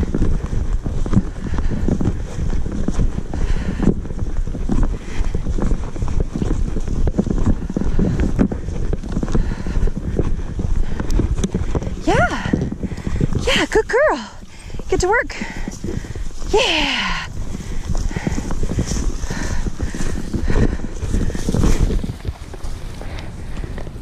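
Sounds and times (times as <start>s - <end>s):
wind buffeting microphone: 0.0s - 24.0s
footsteps crunching through dry grass: 15.4s - 23.8s.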